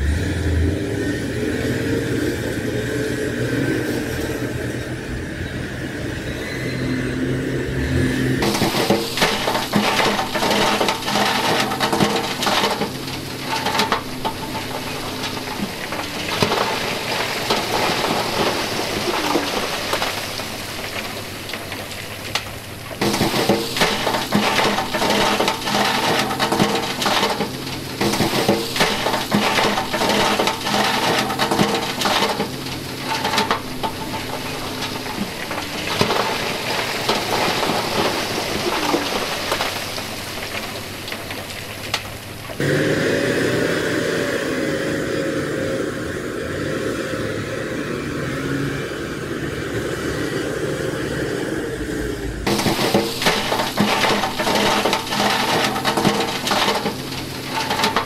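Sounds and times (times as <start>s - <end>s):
diesel truck engine running: 0.0s - 58.0s
stone sliding and clattering: 8.4s - 42.6s, 52.5s - 58.0s.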